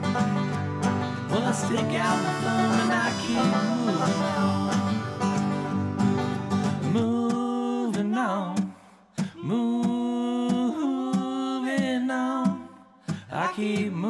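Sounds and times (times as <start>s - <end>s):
americana song: 0.0s - 14.0s
voice holding wordless notes: 1.3s - 6.0s.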